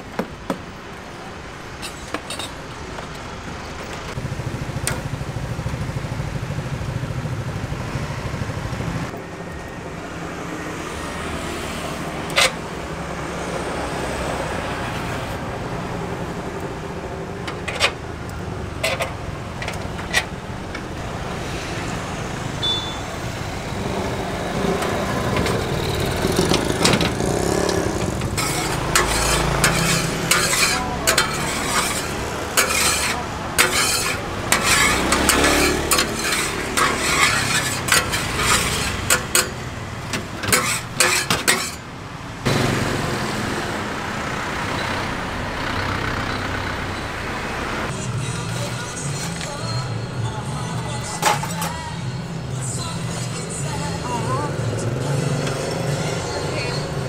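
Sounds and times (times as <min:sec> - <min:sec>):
background traffic: 0:00.0 - 0:57.0
metal spatula scraping a pan: 0:28.0 - 0:41.9, 0:51.1 - 0:51.9.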